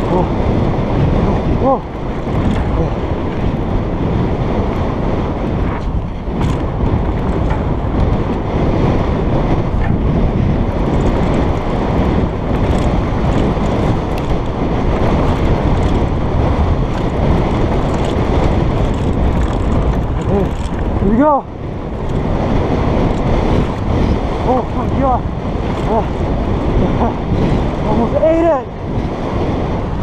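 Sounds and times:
bike clicks and rattles: 0.0s - 30.0s
wind buffeting microphone: 0.0s - 30.0s
tyre rumble on dirt: 9.8s - 24.4s.

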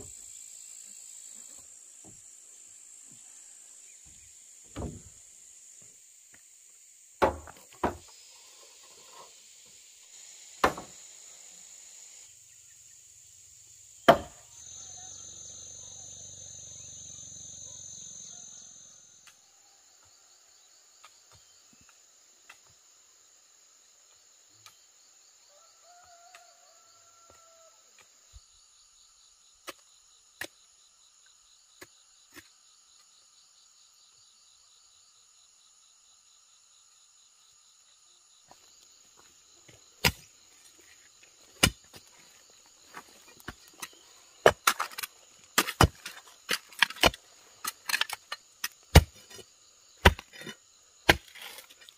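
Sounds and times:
insects chirring: 0.0s - 51.9s
digging tool striking stony earth: 14.1s - 14.4s, 40.0s - 40.3s, 41.6s - 42.1s, 42.9s - 51.9s.

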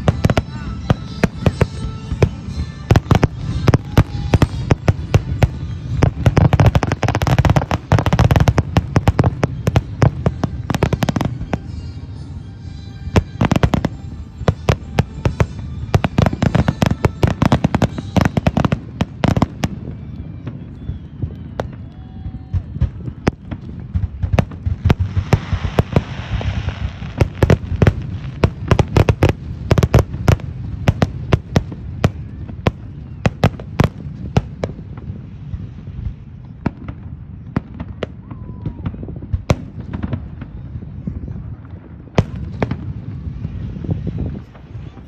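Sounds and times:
fireworks bangs: 0.0s - 45.0s.

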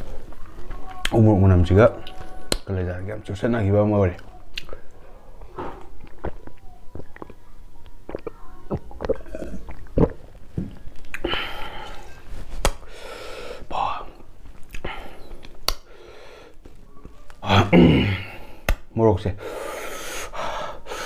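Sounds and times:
person chewing: 2.0s - 2.6s, 4.2s - 5.0s, 5.7s - 12.8s, 14.5s - 15.9s
breathing: 12.8s - 13.7s, 14.8s - 16.6s, 19.4s - 21.0s.

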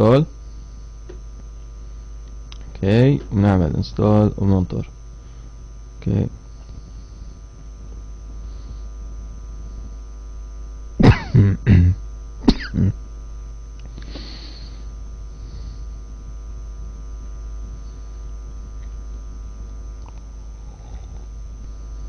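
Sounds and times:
steady electrical hum: 0.0s - 22.0s
man coughing: 11.0s - 13.0s.

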